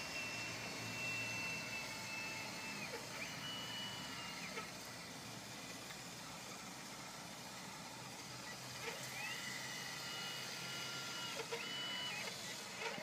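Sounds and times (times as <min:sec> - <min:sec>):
electric motor whining: 0:00.0 - 0:05.0, 0:08.4 - 0:13.0.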